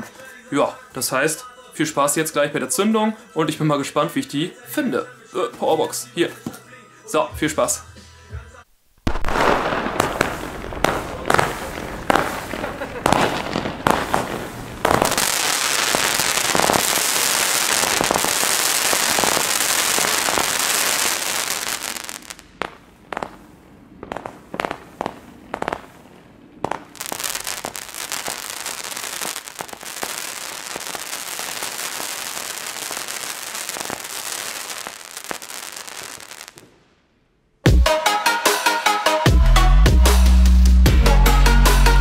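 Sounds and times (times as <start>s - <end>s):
firework cake firing rapid shots: 9.1s - 23.4s, 24.0s - 25.9s, 26.6s - 36.7s.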